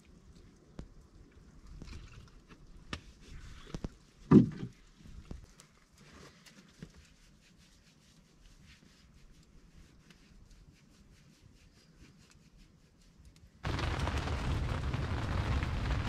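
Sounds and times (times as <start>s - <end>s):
wood fire crackling: 13.2s - 16.0s.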